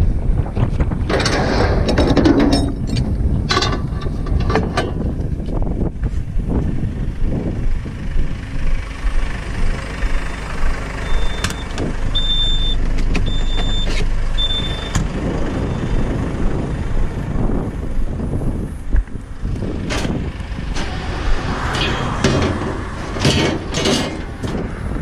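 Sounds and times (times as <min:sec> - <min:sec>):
vehicle engine rumbling: 0:00.0 - 0:25.0
reversing alarm beeping: 0:11.0 - 0:15.0.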